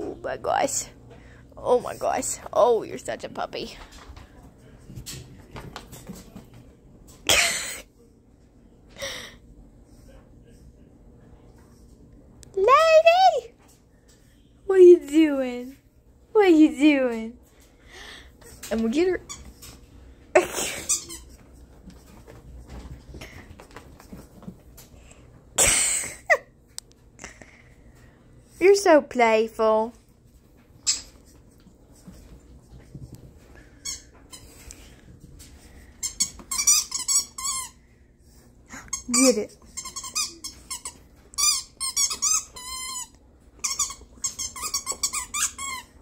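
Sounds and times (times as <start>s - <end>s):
squeaky toy squeaking: 36.0s - 37.8s, 39.0s - 45.9s.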